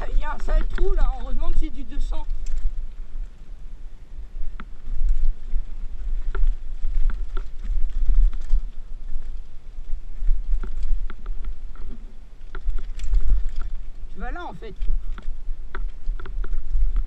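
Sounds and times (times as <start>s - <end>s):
wind rumble on microphone: 0.0s - 17.0s
bike clicks and rattles: 15.0s - 17.0s.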